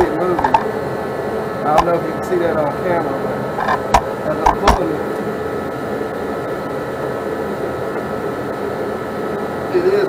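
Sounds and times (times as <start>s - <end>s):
machinery whirring and hissing: 0.0s - 10.0s
sharp knocks: 0.4s - 0.6s, 3.6s - 4.8s.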